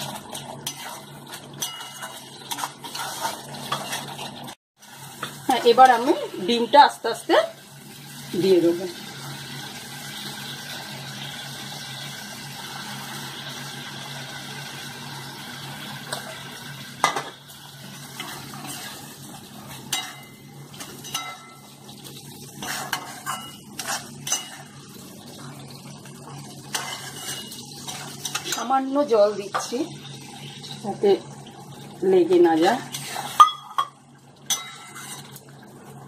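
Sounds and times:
spatula scraping metal pan: 0.6 - 4.4, 18.2 - 19.2, 22.5 - 24.8, 26.7 - 28.7, 32.9 - 33.7, 34.5 - 35.4.

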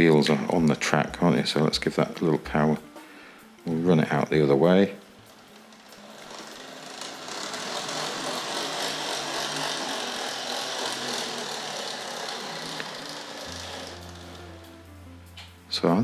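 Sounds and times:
wheels rattling on rails: 5.2 - 14.9
model train motor whirring: 5.2 - 15.0.

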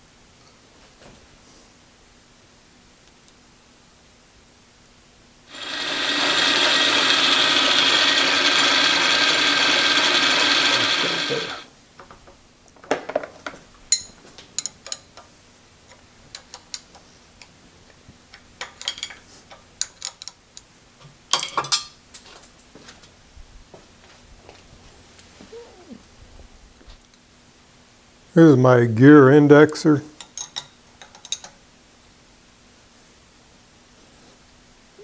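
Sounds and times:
shop machine motor running: 5.5 - 11.7.

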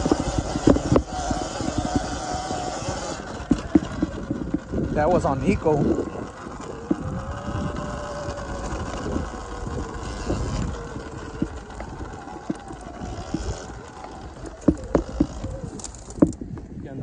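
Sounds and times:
electric motor whine: 0.0 - 16.8
wind and tyre rumble: 0.0 - 17.0
knocks from rough ground: 8.7 - 16.4.

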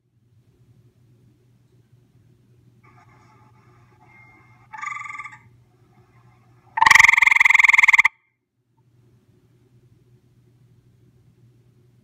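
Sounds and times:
tree frog trilling: 4.7 - 5.5, 6.8 - 8.1.

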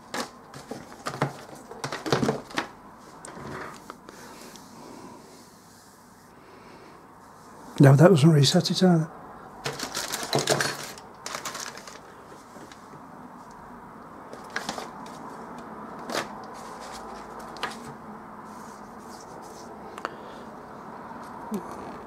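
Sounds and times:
hands rustling plastic parts: 0.0 - 4.1, 9.6 - 13.6, 14.3 - 18.0.

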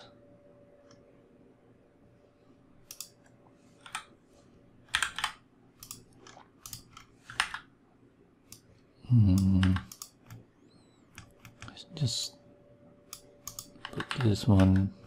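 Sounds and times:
keyboard and mouse clicks: 2.8 - 4.1, 4.9 - 7.7, 9.3 - 10.4, 11.1 - 11.8, 13.1 - 15.0
man humming: 9.0 - 9.9.

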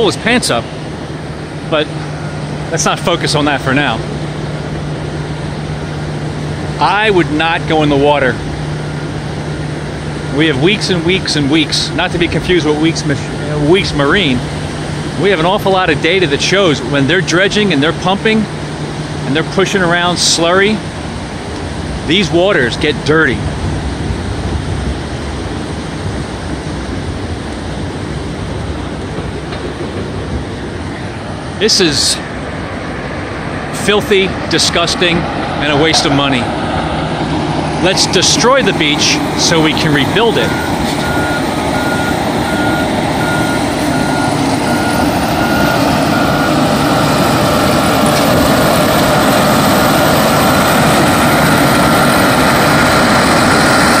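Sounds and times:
bulldozer diesel engine under load: 0.0 - 54.0
surf rushing: 0.0 - 54.0
wind: 0.0 - 54.0
reversing alarm beeping: 39.5 - 48.2.

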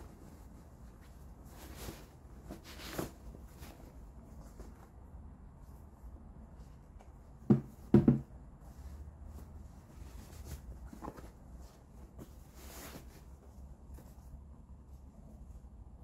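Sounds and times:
cloth bag rustling: 0.0 - 4.9
shoe thumping on cardboard box: 7.4 - 8.3.

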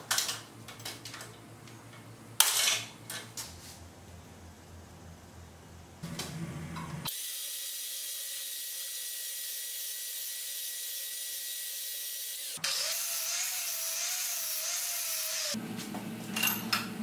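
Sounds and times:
band saw cutting steel: 7.1 - 15.6
angle grinder grinding steel: 7.2 - 15.6.

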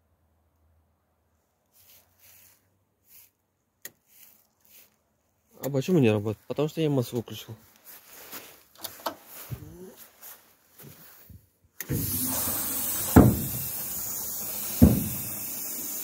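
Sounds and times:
hydraulic oil hissing: 11.8 - 16.0
dull thumps: 11.9 - 13.9, 14.6 - 15.4.

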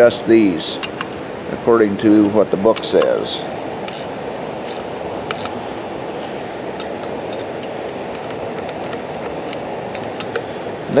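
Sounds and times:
hand tools clicking on bolts: 3.9 - 4.1.

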